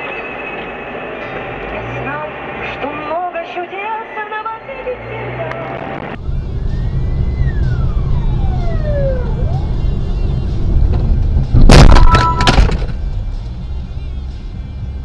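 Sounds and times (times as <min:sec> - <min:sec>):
steady tone: 0:00.0 - 0:12.6
car engine and road rumble: 0:00.0 - 0:15.0
car crash: 0:10.8 - 0:13.1.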